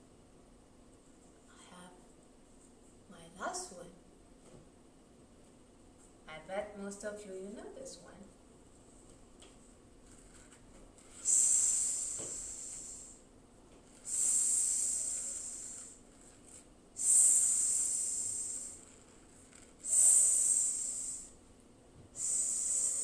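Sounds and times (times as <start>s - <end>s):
woman hissing s sound: 11.2s - 13.2s, 14.0s - 16.0s, 17.0s - 18.9s, 19.8s - 21.4s, 22.2s - 23.0s.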